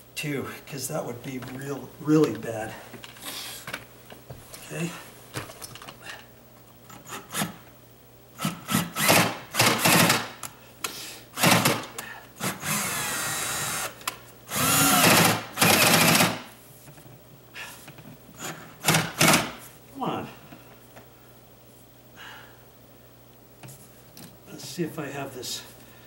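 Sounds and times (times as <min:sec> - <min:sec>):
cordless drill motor: 0:08.4 - 0:10.2, 0:11.4 - 0:11.8, 0:12.4 - 0:16.4.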